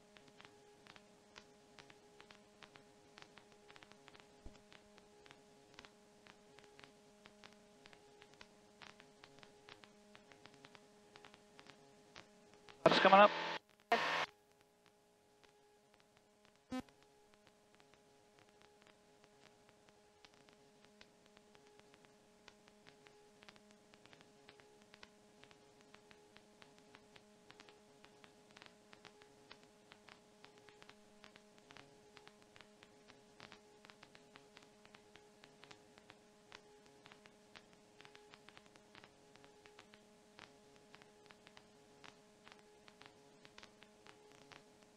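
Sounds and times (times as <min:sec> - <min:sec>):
faint steady hum: 0:00.0 - 0:44.9
faint clicks: 0:20.2 - 0:44.7.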